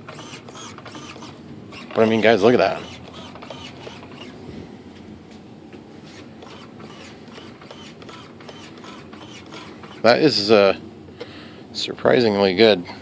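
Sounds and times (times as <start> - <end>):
small servo whirring: 0.0 - 4.4, 6.0 - 10.2.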